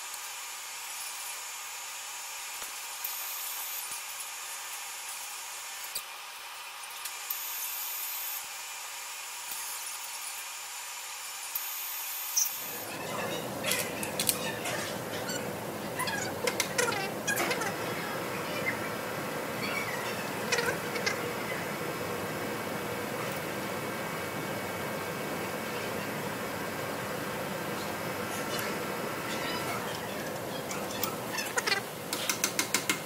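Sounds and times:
machine shop hum: 12.5s - 33.0s.

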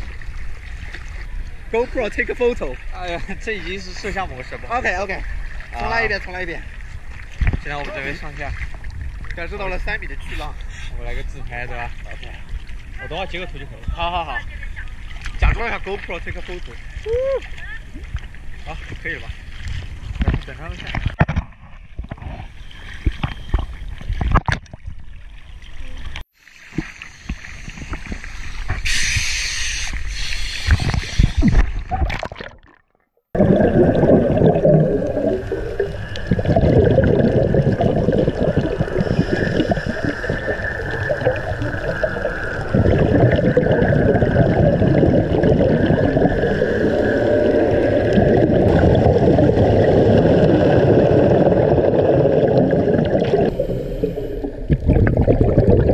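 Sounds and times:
muffled underwater rush: 0.0s - 55.9s
scuba bubbles rising: 30.7s - 55.9s.

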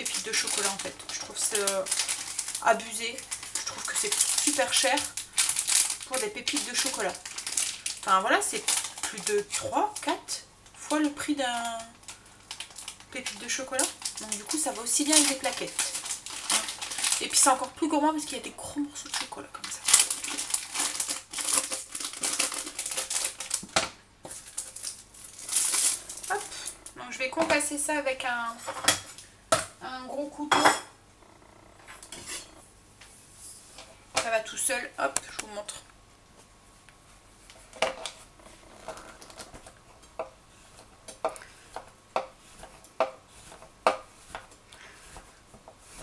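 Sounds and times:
wrapper crinkling: 0.0s - 27.0s, 37.5s - 40.2s.

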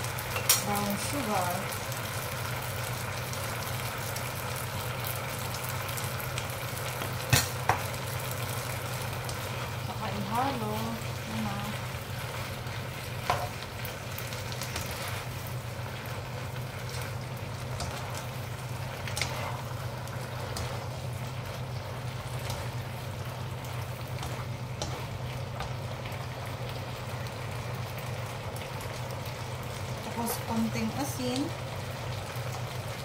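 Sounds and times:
vegetables sizzling in a wok: 0.0s - 33.0s
utensils clacking against pan: 0.3s - 0.9s
steady low hum: 5.6s - 33.0s.

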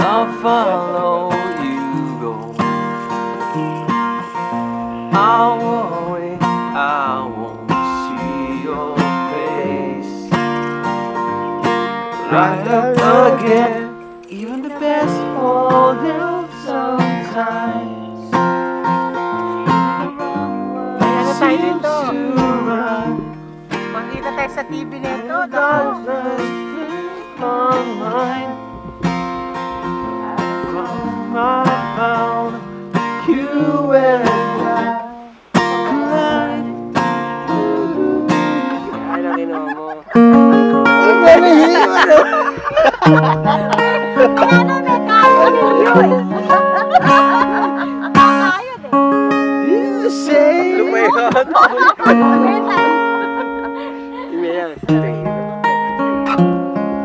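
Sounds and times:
person singing: 0.0s - 2.6s, 5.1s - 10.4s, 12.3s - 18.4s, 19.5s - 23.4s, 24.8s - 28.6s, 33.2s - 55.4s
acoustic guitar strumming chords: 0.0s - 57.0s.

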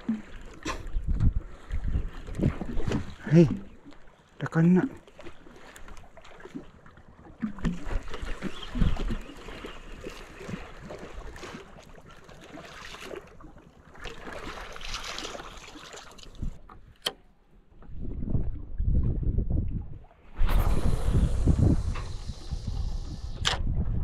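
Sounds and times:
water around boat: 0.0s - 24.0s
wind buffeting microphone: 0.8s - 3.1s, 17.8s - 24.0s
sharp click: 23.3s - 23.7s.

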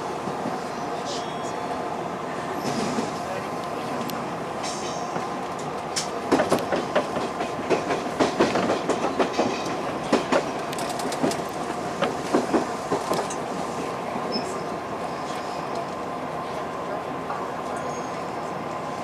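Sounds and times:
train rumble: 0.0s - 19.0s.

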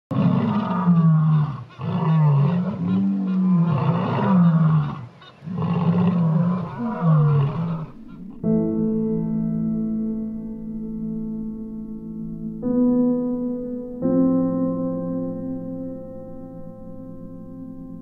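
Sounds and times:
deep wild animal calls: 0.1s - 9.3s.

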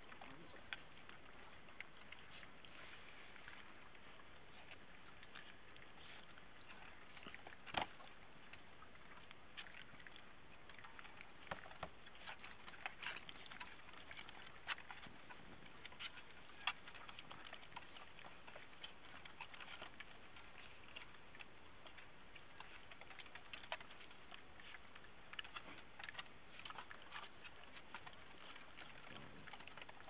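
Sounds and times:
puppies crunching dry kibble: 0.0s - 30.0s.

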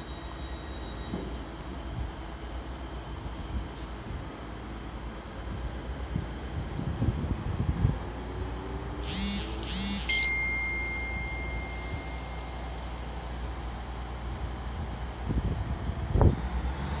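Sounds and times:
diesel train idling: 0.0s - 6.5s, 9.0s - 16.1s
short beeps: 9.1s - 12.7s
ringing ding: 10.1s - 12.4s.

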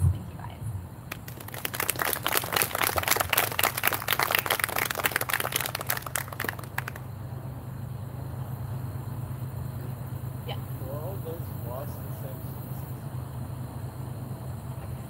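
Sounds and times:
low steady room hum: 0.0s - 15.0s
audience clapping: 1.1s - 7.1s.

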